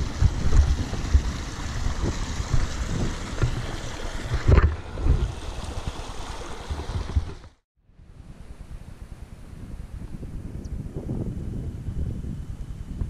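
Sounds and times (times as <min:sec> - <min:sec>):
mountain stream rushing: 0:00.0 - 0:07.6
wind thumps on microphone: 0:00.0 - 0:07.6, 0:08.2 - 0:13.0.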